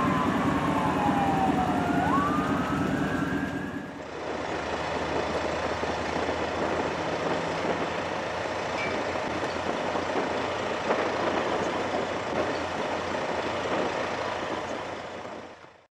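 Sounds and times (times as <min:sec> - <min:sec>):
emergency vehicles idling: 0:00.0 - 0:15.9.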